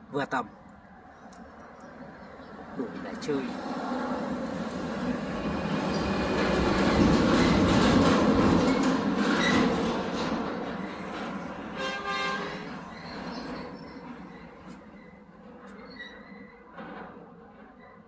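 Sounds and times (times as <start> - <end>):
vehicle passing: 1.9 - 8.0.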